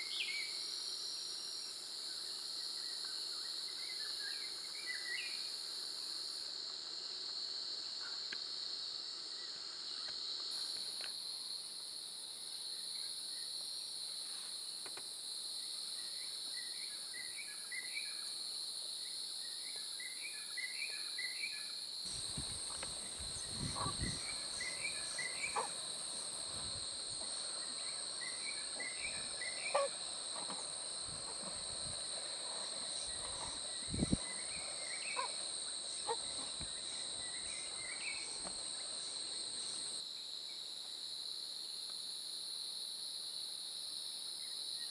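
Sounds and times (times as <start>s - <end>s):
high-pitched insect chorus: 0.0s - 44.9s
bird chirping: 22.8s - 26.1s.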